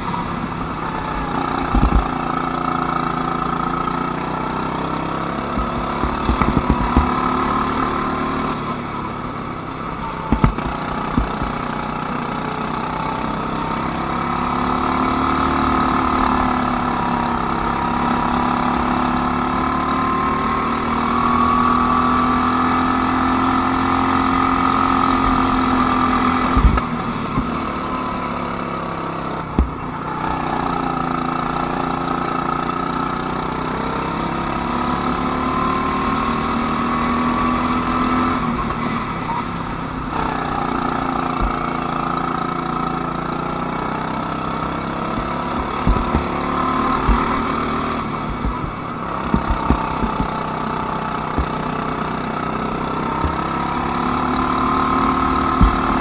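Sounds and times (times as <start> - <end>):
go-kart engine running: 0.0 - 56.0
short knocks: 5.5 - 7.3, 29.6 - 29.8, 44.9 - 50.6, 55.5 - 56.0.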